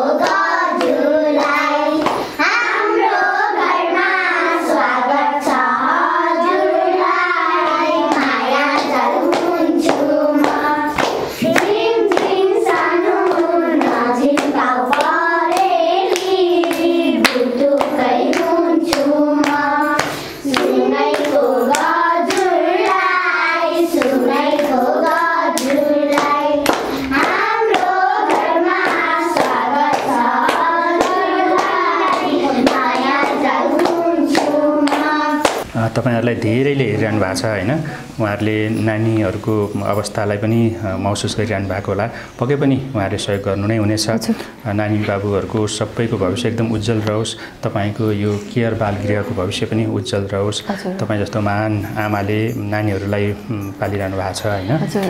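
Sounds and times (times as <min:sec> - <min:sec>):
girls singing in unison: 0:00.0 - 0:35.7.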